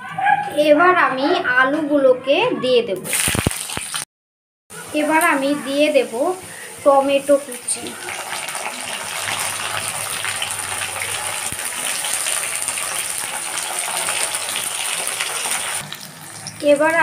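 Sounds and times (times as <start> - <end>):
food sizzling in hot oil: 3.1 - 4.1, 4.7 - 17.0.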